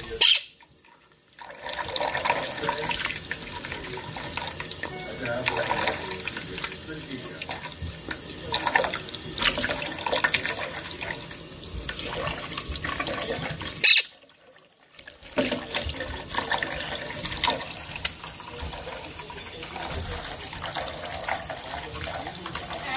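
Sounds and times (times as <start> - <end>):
tap running into metal sink: 15.0 - 22.9.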